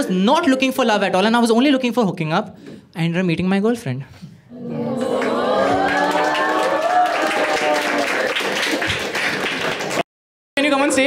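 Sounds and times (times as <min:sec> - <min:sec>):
audience cheering: 0:04.6 - 0:10.0
applause: 0:05.0 - 0:11.0.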